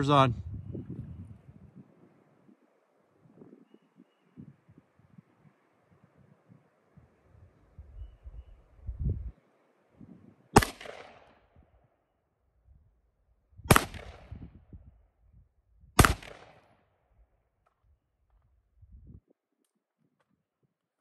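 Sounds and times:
rifle shots with echo: 10.6s - 11.6s, 13.7s - 14.4s, 16.0s - 16.8s.

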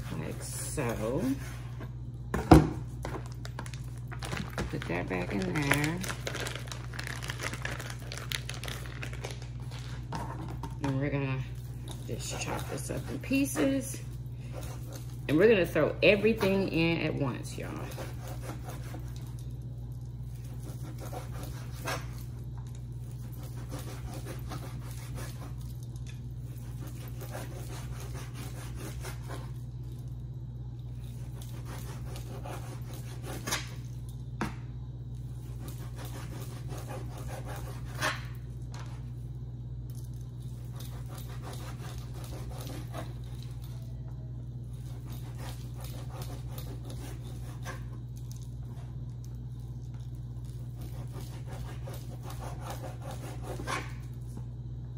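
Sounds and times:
low hum: 37.1s - 54.9s.

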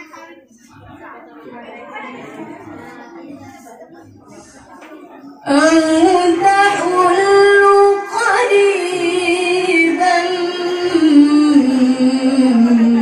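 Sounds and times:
woman reciting melodically: 5.3s - 13.0s.

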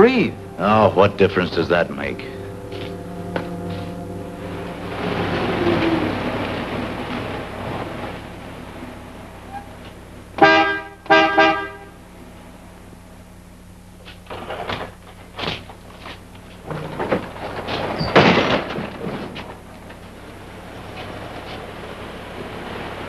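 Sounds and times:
car horn honks: 10.4s - 12.0s.

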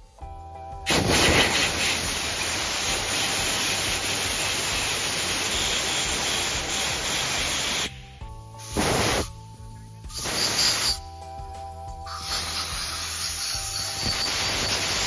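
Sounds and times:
compressed-air blow gun hissing: 0.9s - 8.0s, 8.6s - 9.4s, 10.1s - 11.0s, 12.1s - 15.0s.

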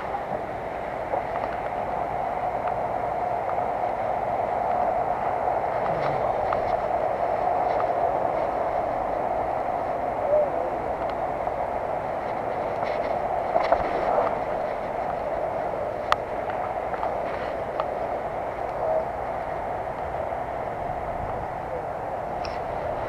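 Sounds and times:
faint ticks: 11.0s - 11.2s.

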